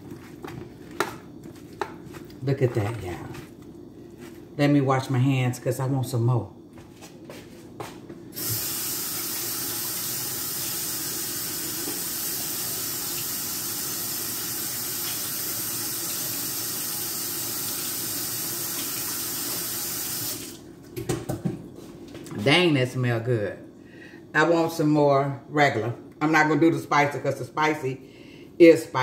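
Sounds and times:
tap running while washing hands: 0:08.4 - 0:21.4.

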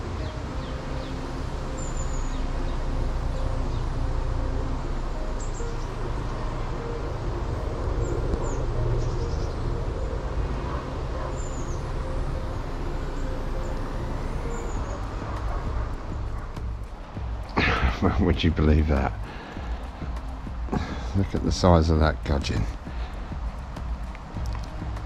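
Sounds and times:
faint engine hum: 0:00.0 - 0:25.0
bird chirps: 0:07.9 - 0:21.6.

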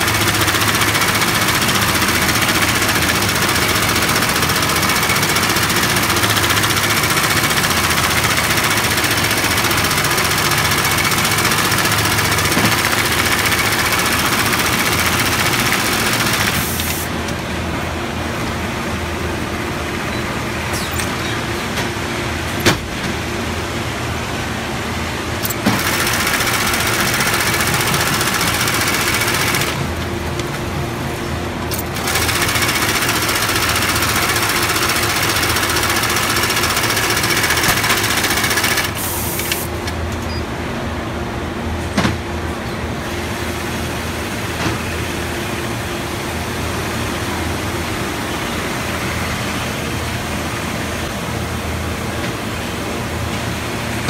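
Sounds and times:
sewing machine stitching: 0:00.0 - 0:17.1, 0:25.4 - 0:29.8, 0:31.7 - 0:39.7.

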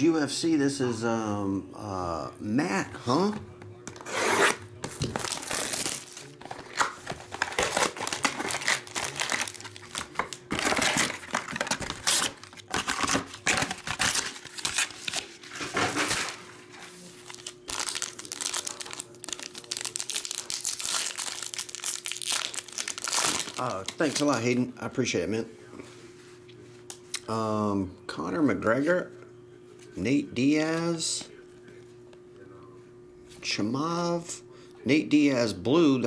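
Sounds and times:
foil packs tearing open: 0:04.0 - 0:16.5, 0:17.2 - 0:24.4
packaging crinkling and tearing: 0:04.0 - 0:24.5.

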